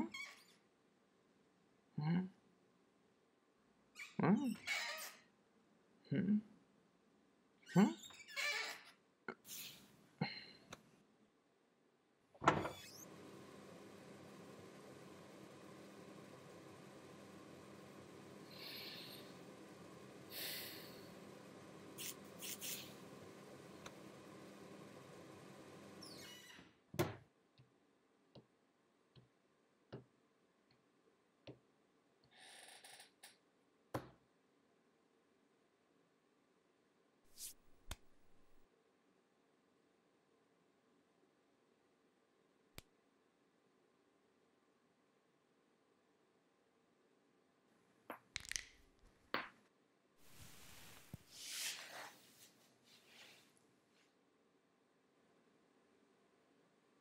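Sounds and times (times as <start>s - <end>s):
cupboard door shutting: 12.4s - 13.0s
short hissing scrape: 22.0s - 23.0s, 50.3s - 52.3s
soft rustling and rubbing: 50.3s - 54.2s.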